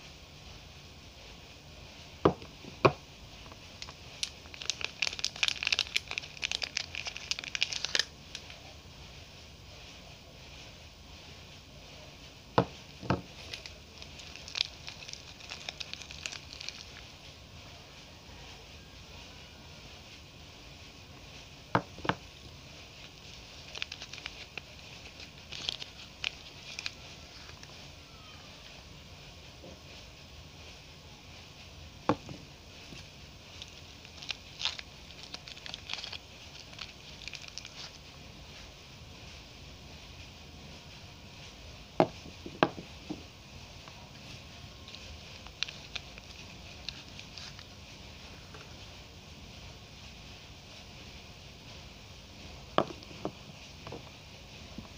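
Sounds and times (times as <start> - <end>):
soap wrapper crinkling: 2.3 - 8.6, 12.6 - 17.1, 22.8 - 27.8, 32.1 - 38.0, 44.8 - 47.8.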